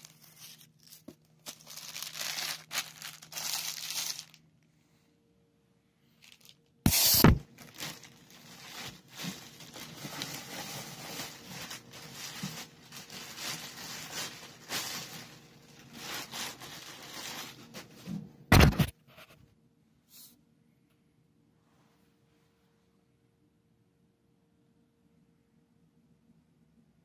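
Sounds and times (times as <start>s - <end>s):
rustling and scraping: 6.2s - 19.4s.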